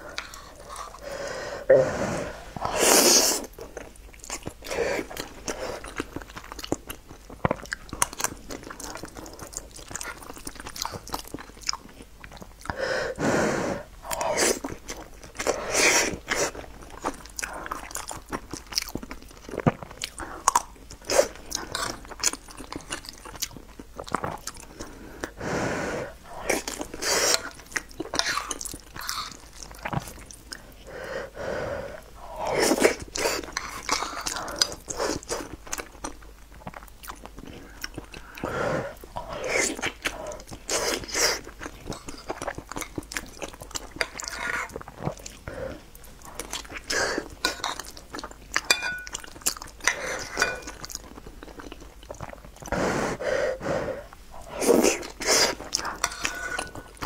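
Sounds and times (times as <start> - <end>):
close-miked chewing: 0.0 - 1.2, 2.4 - 12.8, 13.8 - 25.4, 26.1 - 30.9, 31.9 - 53.0, 53.6 - 57.0.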